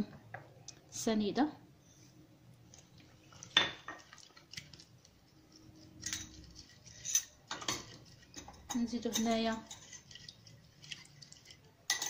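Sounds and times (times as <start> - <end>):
utensils clinking on glass bowl: 5.8 - 12.0.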